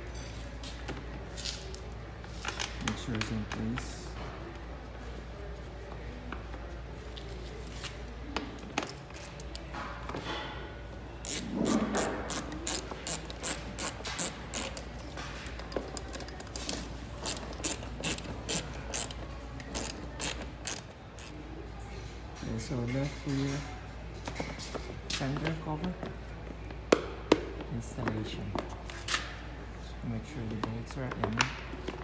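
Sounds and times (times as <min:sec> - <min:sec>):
socket ratchet clicking: 0:12.3 - 0:14.8, 0:17.2 - 0:21.3.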